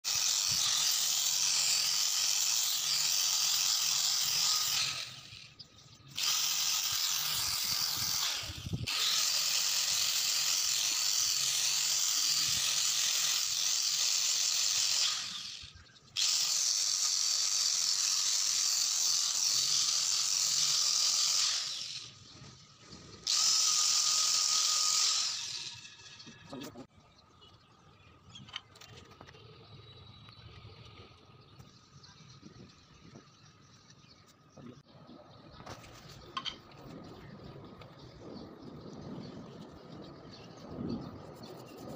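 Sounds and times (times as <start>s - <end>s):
angle grinder sanding wood: 0.0s - 5.3s, 6.2s - 15.6s, 16.2s - 22.0s.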